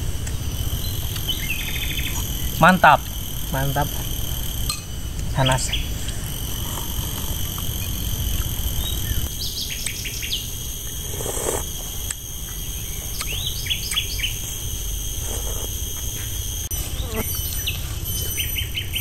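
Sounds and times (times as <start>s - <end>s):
birds chirping: 0.0s - 19.0s
insect drone: 0.0s - 19.0s
sipping from a spoon: 11.0s - 11.7s.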